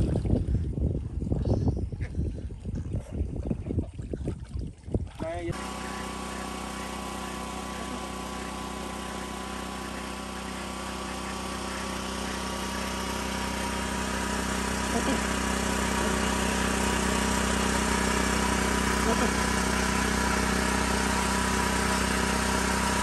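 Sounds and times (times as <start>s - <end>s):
generator humming: 5.4s - 23.0s.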